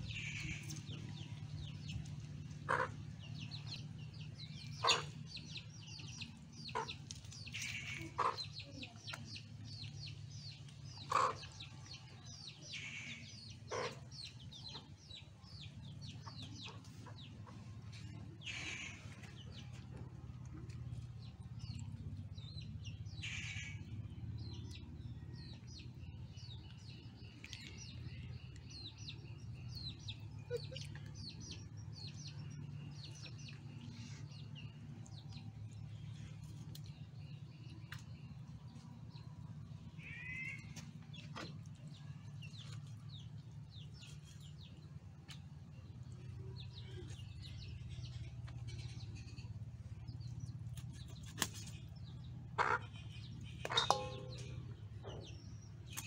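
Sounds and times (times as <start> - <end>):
chickens clucking: 0.0 - 12.2, 13.5 - 21.2, 52.3 - 55.4
birds chirping: 0.0 - 56.0.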